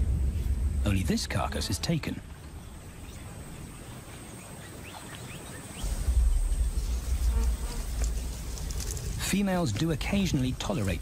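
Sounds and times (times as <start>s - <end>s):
insects buzzing: 0.5s - 11.0s
deep low rumble: 5.8s - 9.4s.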